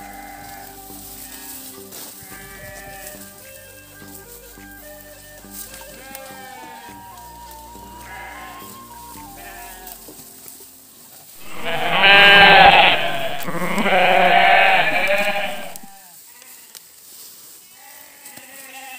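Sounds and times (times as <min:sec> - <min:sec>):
sheep bleating: 0:00.0 - 0:03.8, 0:05.9 - 0:10.0, 0:11.4 - 0:16.8, 0:17.7 - 0:18.9
background music: 0:00.0 - 0:15.9.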